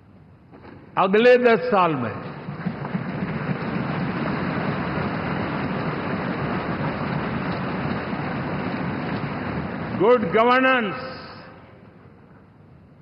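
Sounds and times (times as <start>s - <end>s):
large crowd applauding: 2.4s - 10.4s.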